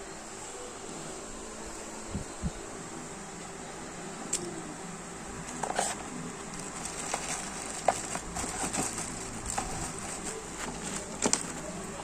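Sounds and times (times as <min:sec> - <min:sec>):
steady background hum: 0:00.0 - 0:12.0
packaging handling clicks and taps: 0:06.6 - 0:11.6.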